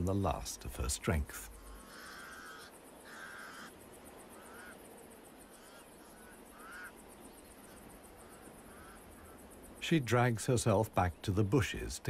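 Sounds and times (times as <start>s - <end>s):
faint steady hiss: 0.0s - 12.0s
crows cawing: 1.3s - 9.7s.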